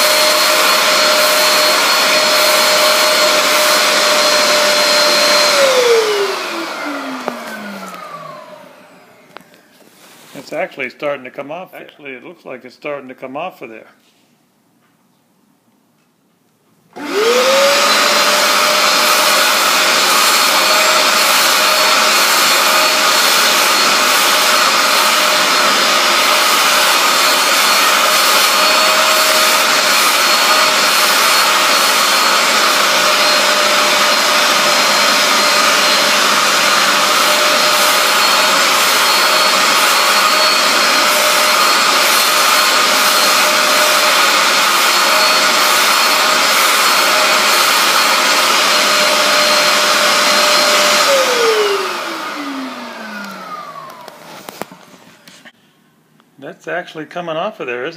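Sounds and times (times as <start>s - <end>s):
hand tool scrubbing and sucking water: 0.0s - 8.2s, 17.0s - 53.5s
carpet cleaner motor whining: 0.0s - 9.9s, 16.9s - 55.5s.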